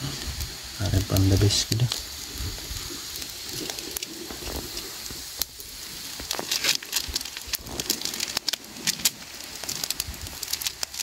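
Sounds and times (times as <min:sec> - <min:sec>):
wood fire crackling and popping: 0:00.0 - 0:11.0.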